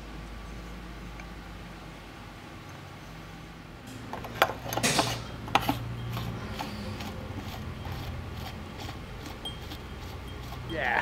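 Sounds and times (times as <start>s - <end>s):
steady low hum: 0.0s - 11.0s
metal parts scraping: 4.2s - 11.0s.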